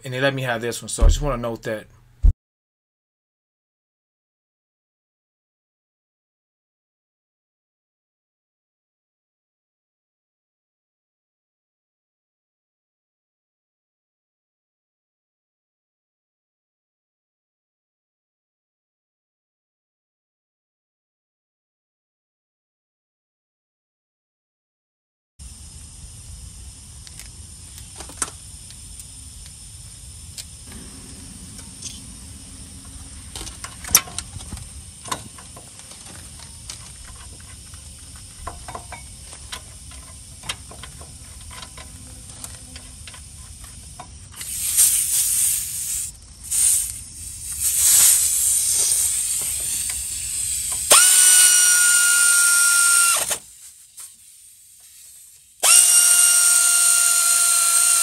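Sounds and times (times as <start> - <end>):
rasping mechanical noise: 26.9 - 45.2
power ratchet whining: 47.6 - 53.6, 55.6 - 58.0.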